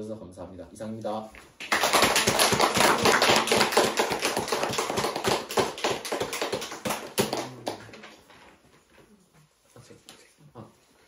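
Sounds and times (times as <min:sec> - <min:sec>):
small group applauding: 0:01.5 - 0:08.4.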